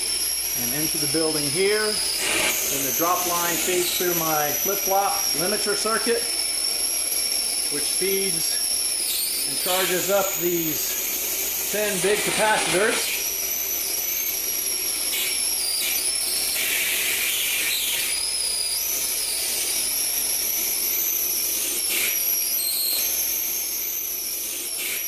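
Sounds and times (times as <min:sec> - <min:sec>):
electric arc hissing and whistling: 0:00.0 - 0:25.0
electric arc crackles: 0:00.6 - 0:06.2, 0:09.4 - 0:11.0, 0:11.7 - 0:13.2.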